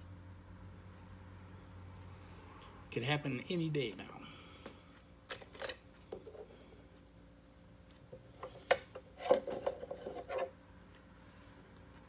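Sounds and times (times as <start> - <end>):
rubbing and rustling handling noises: 8.4 - 10.6.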